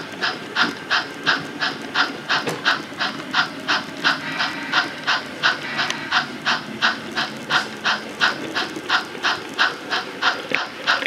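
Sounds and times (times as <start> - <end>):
model steam locomotive chuffing: 0.0 - 11.0.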